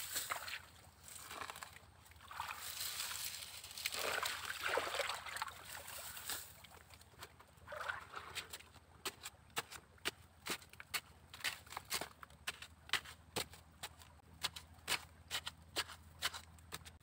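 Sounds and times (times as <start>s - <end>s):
stream water sloshing and splashing: 0.0s - 10.7s.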